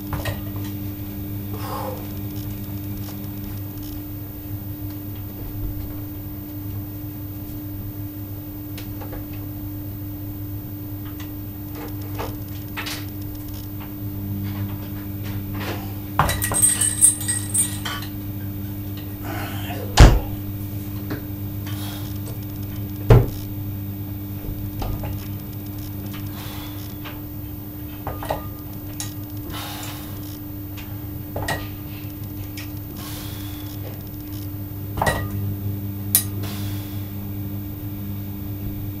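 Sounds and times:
steady low hum: 0:00.0 - 0:39.0
chains and weight plate clinking: 0:16.3 - 0:18.0.

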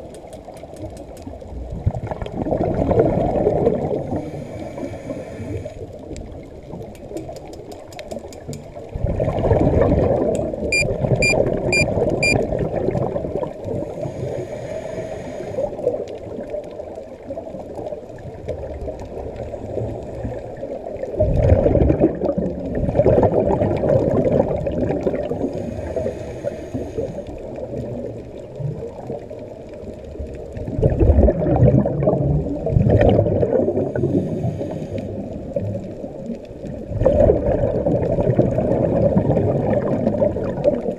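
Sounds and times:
underwater exhale bubbling: 0:01.5 - 0:06.8, 0:08.8 - 0:40.9
short high beeps: 0:10.7 - 0:12.4.

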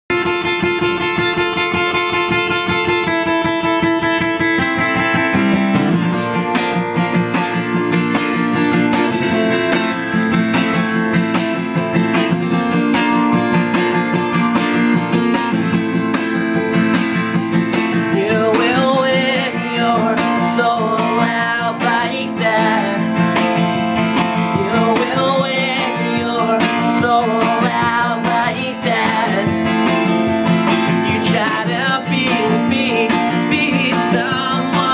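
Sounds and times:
acoustic guitar strumming: 0:00.1 - 0:34.9
man singing: 0:17.7 - 0:34.9.

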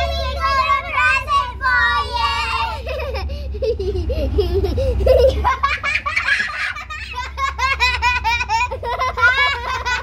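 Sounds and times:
children giggling: 0:02.6 - 0:10.0.

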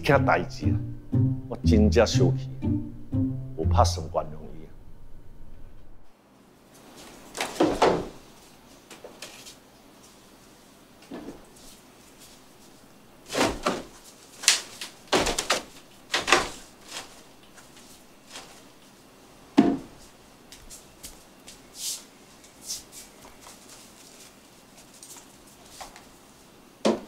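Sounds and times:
fabric rustling: 0:11.4 - 0:18.8, 0:21.8 - 0:26.3
plastic knocks and clatters: 0:13.4 - 0:17.2.

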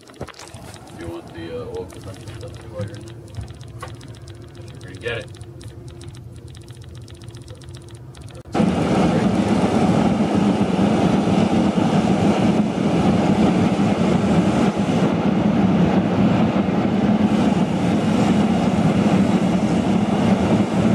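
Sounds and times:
quiet hum: 0:00.0 - 0:08.4.

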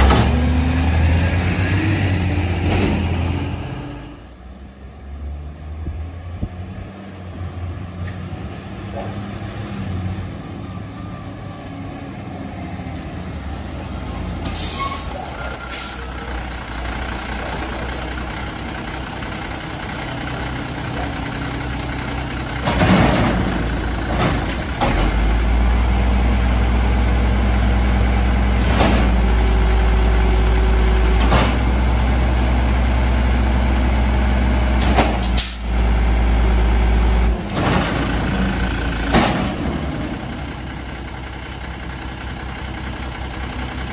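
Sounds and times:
diesel engine running loudly: 0:00.0 - 0:04.4, 0:06.6 - 0:43.9
air brakes hissing: 0:12.9 - 0:16.4.

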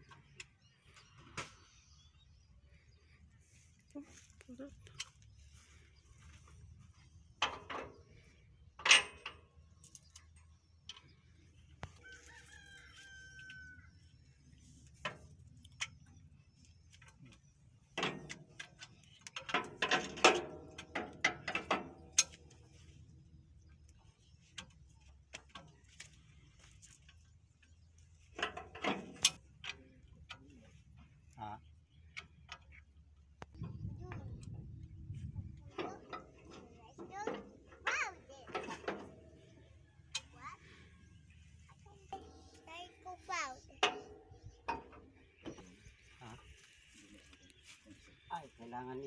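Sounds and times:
metal couplers clicking and clanking: 0:07.0 - 0:12.0, 0:14.9 - 0:23.0, 0:23.7 - 0:34.6, 0:35.6 - 0:40.9, 0:42.1 - 0:46.0.

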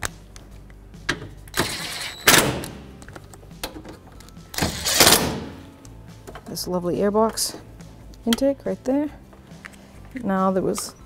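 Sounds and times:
electric ratchet whirring: 0:04.6 - 0:05.2.

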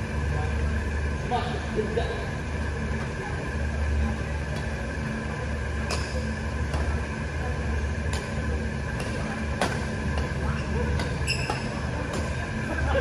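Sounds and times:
steady low hum: 0:00.0 - 0:13.0
rackets hitting shuttlecock: 0:05.8 - 0:07.0, 0:08.0 - 0:12.4.

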